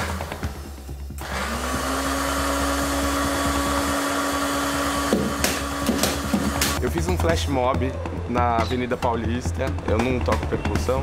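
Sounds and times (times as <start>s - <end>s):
blender motor running: 0.0s - 6.8s.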